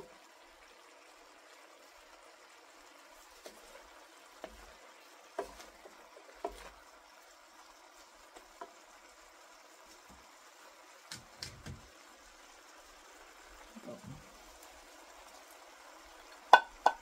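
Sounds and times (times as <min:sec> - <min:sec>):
faint steady hiss: 0:00.0 - 0:17.0
spatula knocking against pan: 0:16.5 - 0:17.0.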